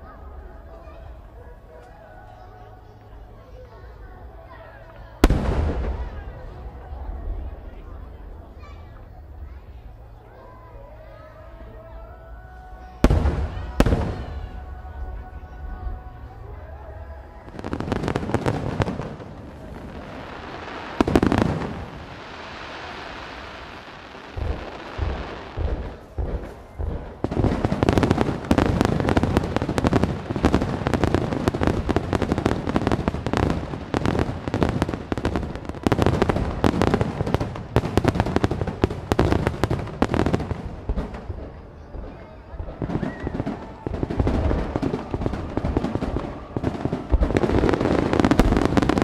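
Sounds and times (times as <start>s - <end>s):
firework boom: 5.2s - 6.5s, 24.3s - 32.2s
barrage of firework bangs: 5.2s - 7.3s, 13.0s - 14.7s, 17.5s - 49.0s
firework hiss: 17.6s - 40.9s.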